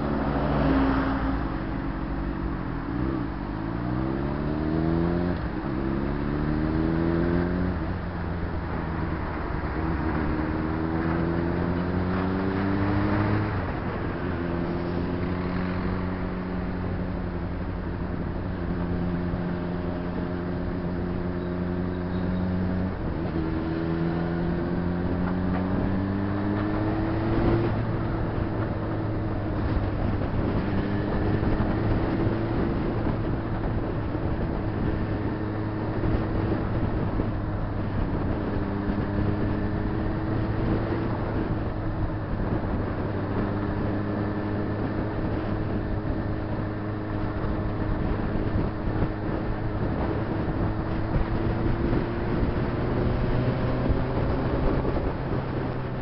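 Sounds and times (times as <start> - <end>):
wind and road rush: 0.0 - 56.0
motorcycle engine running: 13.3 - 56.0.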